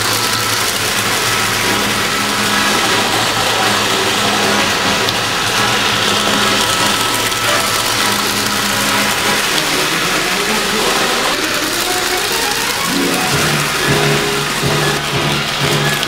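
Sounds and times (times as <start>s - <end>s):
toy train motors whirring: 0.0s - 16.0s
wheels clattering on metal rails: 0.0s - 16.0s.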